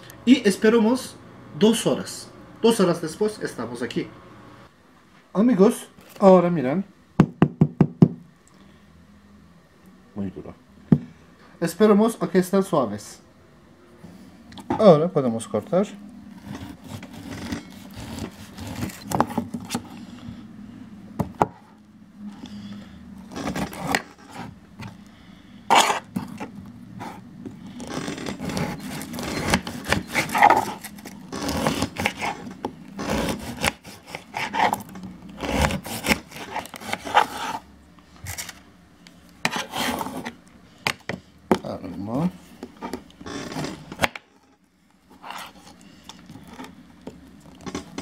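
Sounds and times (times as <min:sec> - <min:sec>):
low steady hum: 0:08.1 - 0:48.0
knife sawing through orange: 0:16.4 - 0:19.2, 0:23.3 - 0:24.5, 0:25.7 - 0:37.7, 0:39.4 - 0:40.3.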